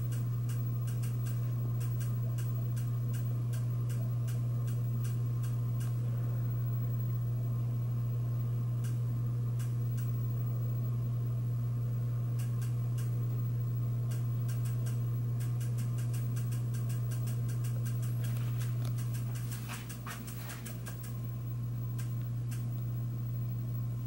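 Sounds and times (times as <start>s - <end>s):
ceiling fan motor hum: 0.0s - 24.0s
light clicks: 0.1s - 6.0s, 14.1s - 21.2s, 21.9s - 22.9s.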